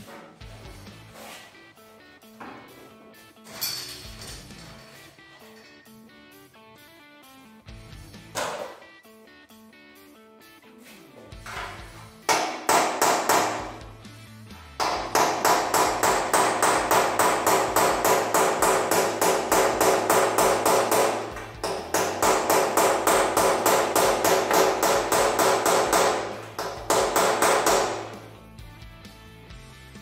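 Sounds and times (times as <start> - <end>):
hammer striking metal: 8.4 - 8.8, 11.4 - 13.9, 14.8 - 28.3.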